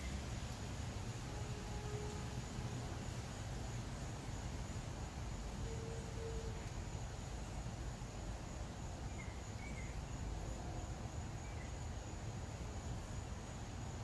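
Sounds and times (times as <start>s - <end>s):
faint high-pitched tone: 1.2s - 3.0s, 5.5s - 6.8s.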